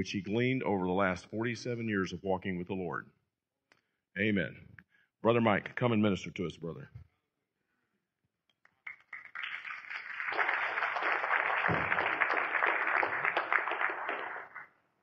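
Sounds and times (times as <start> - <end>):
audience applauding: 8.8 - 14.7.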